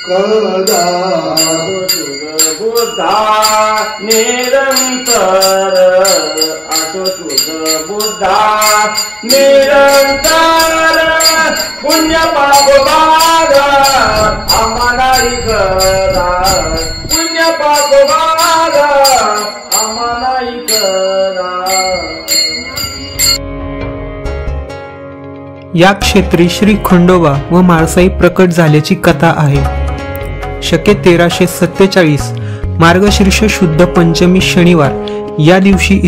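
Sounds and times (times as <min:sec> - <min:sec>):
ringing metallic beat: 0:00.0 - 0:23.4.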